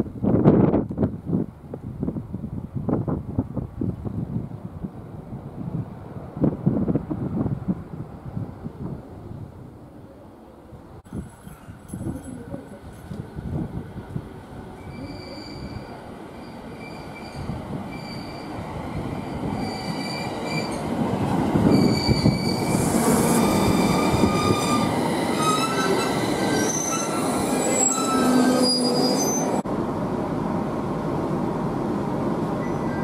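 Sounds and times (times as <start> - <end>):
train rumble: 0.0 - 33.0
moving train running noise: 11.0 - 33.0
train brakes squealing: 14.8 - 18.6, 19.2 - 20.8, 21.7 - 29.6, 32.6 - 33.0.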